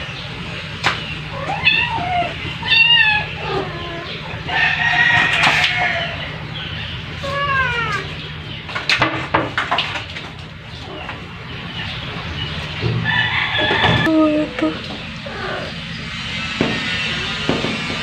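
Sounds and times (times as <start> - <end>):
steady low hum: 10.3 - 18.0
sharp knocks: 16.6 - 18.0.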